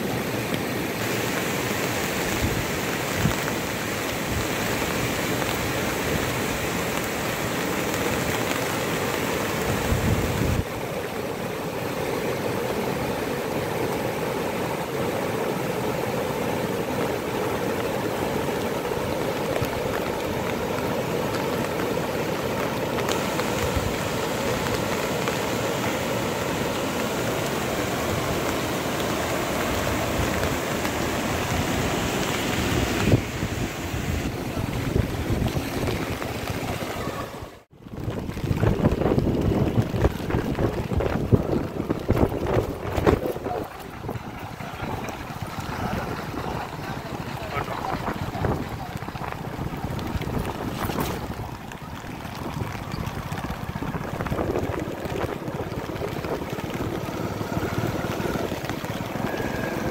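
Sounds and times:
water rushing: 0.0s - 59.9s.

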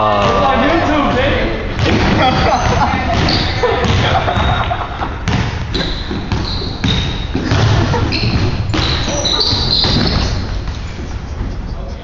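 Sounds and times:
sneaker squeaks: 2.2s - 11.8s
basketball bouncing on wood: 5.2s - 10.8s.

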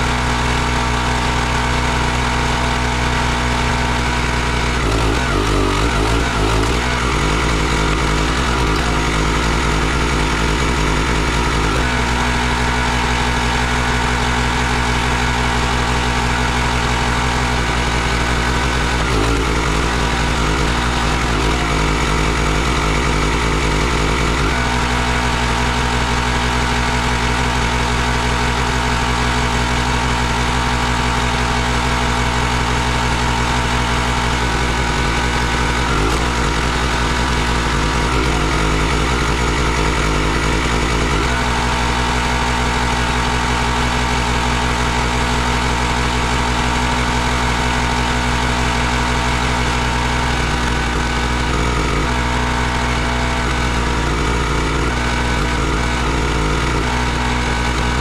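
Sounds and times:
log splitter engine running: 0.0s - 58.0s.

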